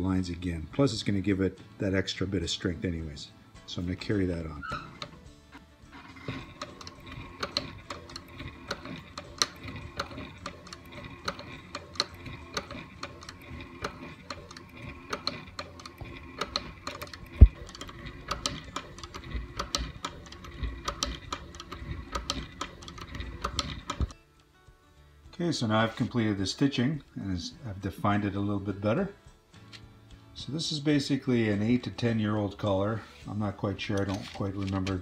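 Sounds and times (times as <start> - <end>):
sewing machine motor hum: 4.6 - 24.2
sewing machine needle ticking: 6.2 - 24.2.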